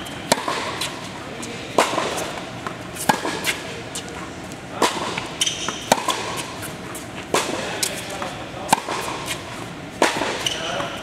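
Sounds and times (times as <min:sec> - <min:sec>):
tennis balls bouncing on hard court: 0:00.0 - 0:11.0
tennis balls struck by rackets: 0:00.0 - 0:11.0
shoe squeak: 0:05.4 - 0:07.0, 0:10.4 - 0:11.0.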